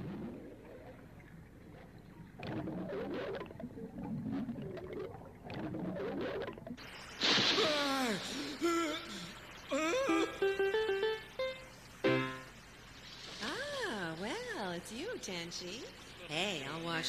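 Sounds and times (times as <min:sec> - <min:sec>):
muffled underwater bubbling: 0:00.0 - 0:06.8
loud splash: 0:07.2 - 0:08.5.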